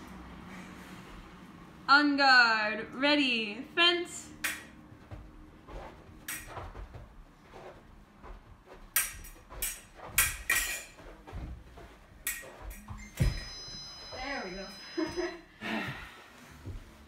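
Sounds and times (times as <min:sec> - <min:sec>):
fencing blades clicking: 0:04.4 - 0:04.7, 0:06.3 - 0:06.6, 0:08.9 - 0:11.0, 0:12.2 - 0:12.9
feet striking the floor: 0:04.7 - 0:17.0.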